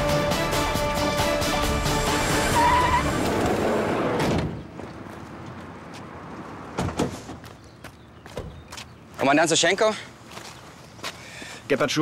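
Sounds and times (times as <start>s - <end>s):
dramatic soundtrack music: 0.0s - 4.0s
car braking to a stop: 1.9s - 4.6s
tyre squeal: 2.3s - 3.4s.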